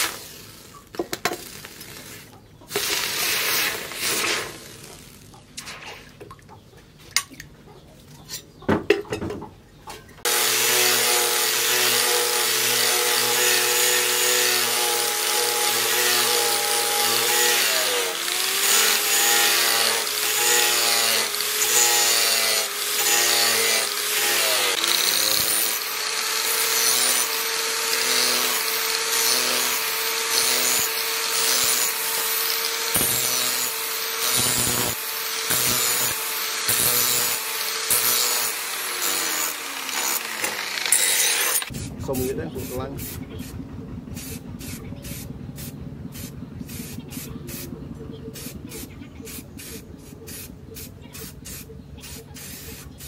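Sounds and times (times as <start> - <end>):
angle grinder grinding steel: 0.0 - 5.3, 10.2 - 43.5.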